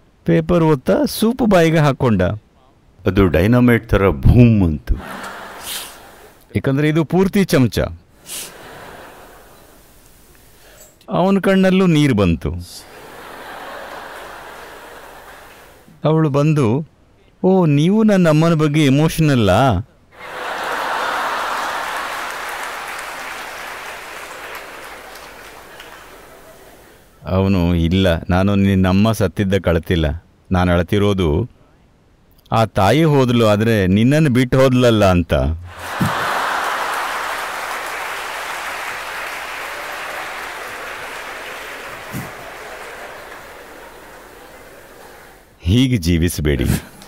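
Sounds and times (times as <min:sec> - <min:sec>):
audience laughing: 0:04.9 - 0:06.4, 0:08.3 - 0:10.0, 0:12.8 - 0:15.9, 0:20.2 - 0:27.0, 0:35.7 - 0:45.5
audience applauding: 0:05.0 - 0:06.3, 0:12.9 - 0:15.9, 0:20.2 - 0:27.1, 0:35.7 - 0:45.6.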